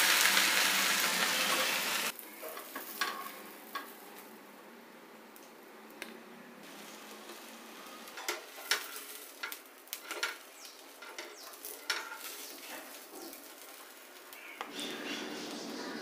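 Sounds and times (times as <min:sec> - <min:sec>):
faint sizzle from pan: 0:00.0 - 0:04.5, 0:06.0 - 0:16.0
metal spatula scraping griddle: 0:07.9 - 0:10.4, 0:11.0 - 0:13.8.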